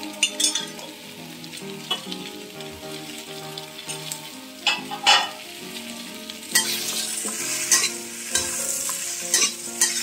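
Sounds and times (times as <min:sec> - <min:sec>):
vegetables sizzling in oil: 0:00.0 - 0:10.0
metal spatula clattering on pan: 0:04.6 - 0:05.4, 0:07.7 - 0:08.6, 0:09.3 - 0:10.0.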